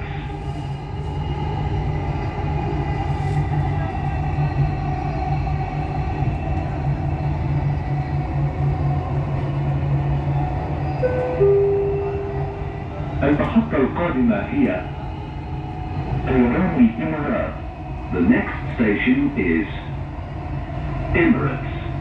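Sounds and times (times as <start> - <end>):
train cabin rumble: 0.0 - 22.0
two-note chime: 11.0 - 13.1.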